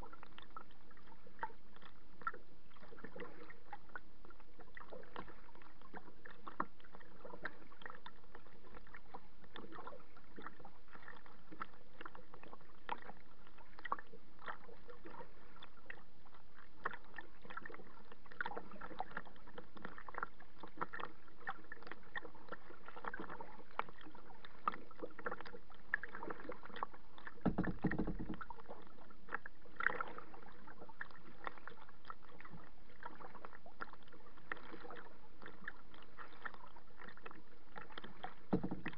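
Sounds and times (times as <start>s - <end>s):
waves slapping kayak hull: 16.8s - 38.9s
low thump: 27.4s - 28.4s, 38.5s - 38.9s.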